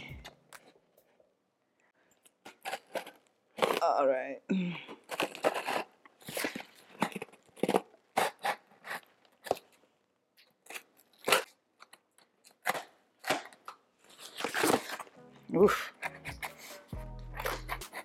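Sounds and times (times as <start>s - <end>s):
scissors cutting packing tape: 2.4s - 4.0s, 5.0s - 9.8s, 10.4s - 15.1s, 15.8s - 18.0s.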